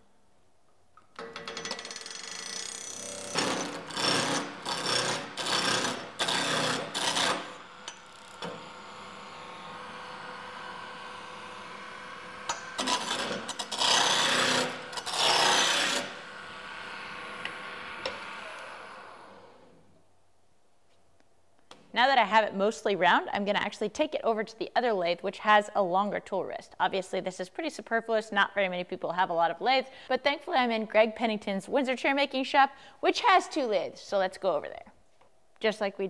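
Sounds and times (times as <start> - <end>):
wood lathe humming: 2.5 - 19.8
gouge cutting wood rasping: 3.3 - 7.6, 12.8 - 16.2.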